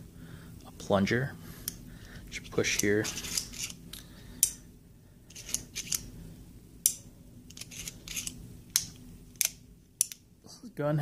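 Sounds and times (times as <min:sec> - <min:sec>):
revolver cylinder clicking: 0:06.8 - 0:10.3.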